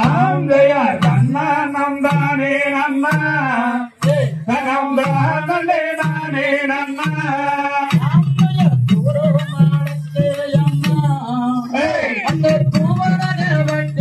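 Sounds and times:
man singing a folk song: 0.0 - 14.0.

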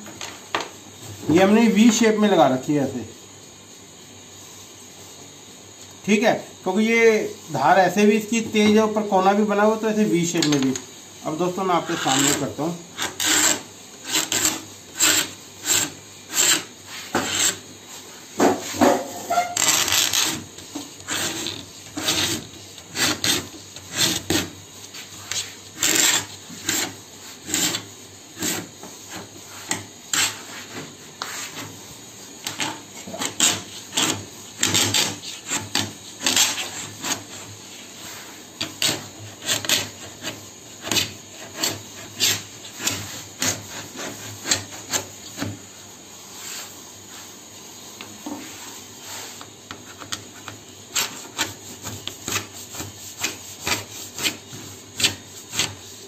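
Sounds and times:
needle scratching laminate sheet: 11.8 - 17.6, 18.7 - 45.6, 49.1 - 56.0.

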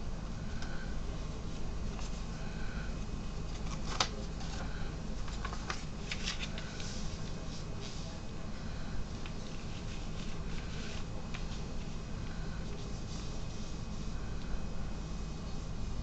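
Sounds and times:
paper crinkling and rustling: 3.4 - 8.2, 9.1 - 12.0.

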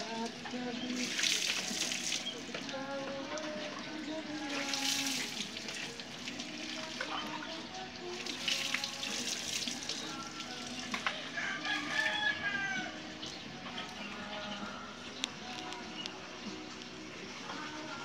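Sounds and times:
water splashing onto motorcycle: 0.0 - 11.1.

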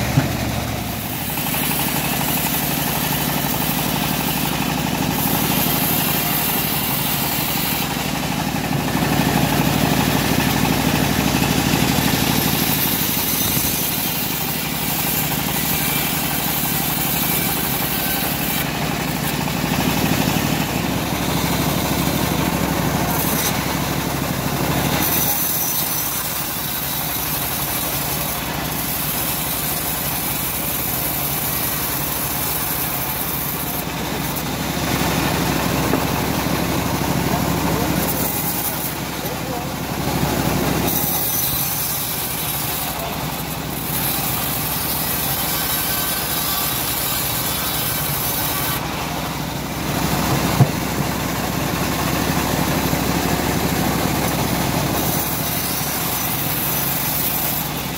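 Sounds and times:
bandsaw blade cutting log: 0.0 - 57.9
machine motor humming: 33.1 - 57.9.

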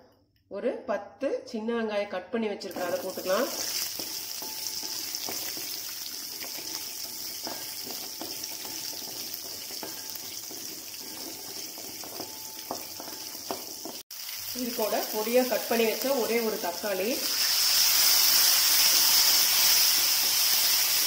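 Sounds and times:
spices sizzling in hot oil: 2.7 - 21.0
wooden spatula knocking on pan: 3.9 - 14.0.

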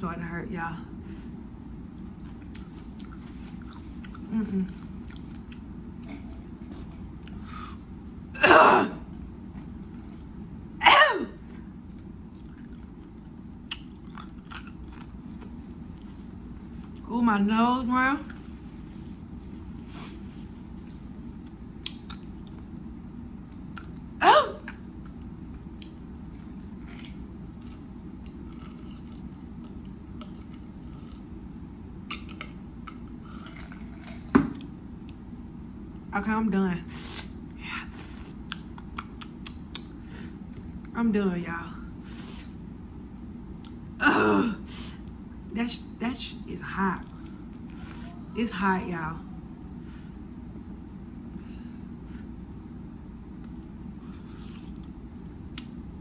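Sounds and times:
steady low hum: 0.0 - 56.0
person gulping drink: 12.3 - 15.6, 32.0 - 34.7
wet swallowing clicks: 38.4 - 40.0.

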